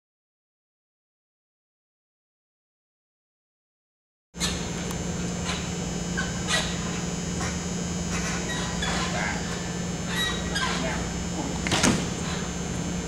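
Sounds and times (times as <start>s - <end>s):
electrical hum: 4.4s - 13.0s.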